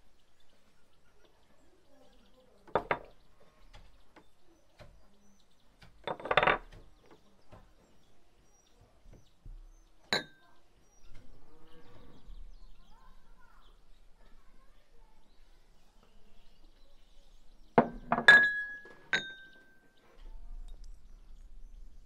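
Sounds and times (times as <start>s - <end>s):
ringing clink against bowl: 10.1s - 10.4s, 18.1s - 19.7s.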